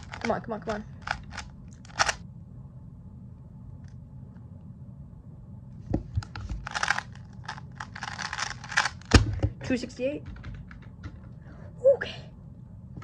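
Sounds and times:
steady low hum: 0.0s - 13.0s
plastic puzzle cube clicking: 1.0s - 2.2s, 6.3s - 9.3s.

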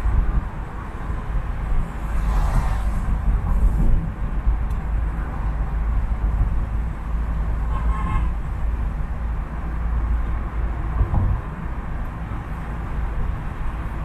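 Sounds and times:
city traffic rumble: 0.0s - 14.0s
tyres on a wet road: 0.0s - 14.0s
car horn toot: 7.7s - 8.3s.

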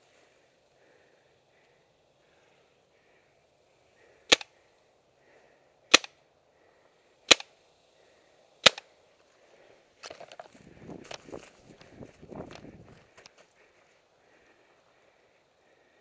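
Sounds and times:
paintball pistol shots popping: 4.3s - 4.5s, 5.9s - 6.2s, 7.3s - 7.6s, 8.6s - 8.9s.

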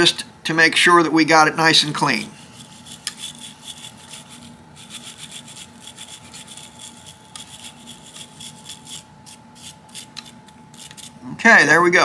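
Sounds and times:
brush scrubbing metal: 2.5s - 11.2s.

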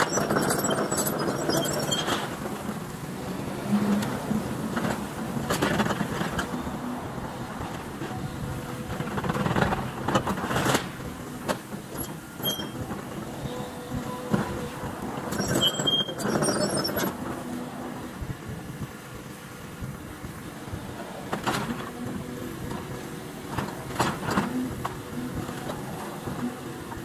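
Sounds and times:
excavator engine under load: 0.0s - 27.0s.

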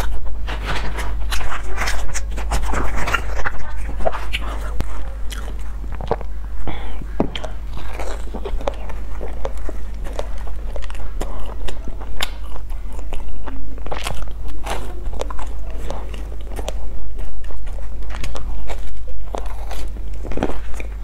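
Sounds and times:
chewing and biting bread: 0.0s - 21.0s.

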